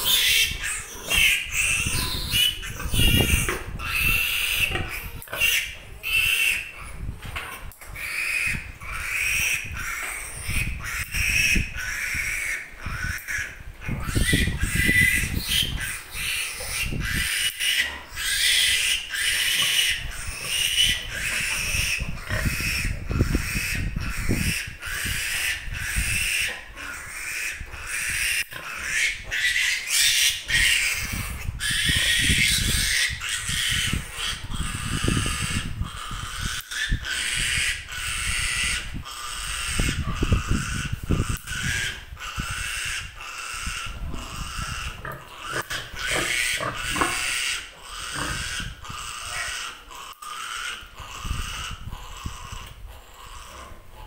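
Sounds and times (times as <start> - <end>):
piglet squealing: 0.0 - 7.1, 7.9 - 53.5.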